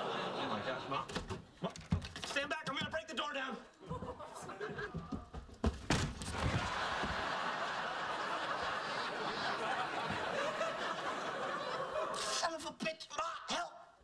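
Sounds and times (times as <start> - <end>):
studio audience laughing: 0.0 - 1.1, 3.9 - 5.1, 6.3 - 12.4.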